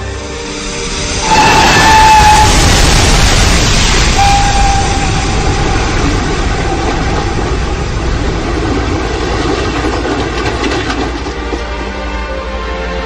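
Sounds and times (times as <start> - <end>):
train passing at speed: 0.0 - 13.0
faint high tone: 4.2 - 7.0.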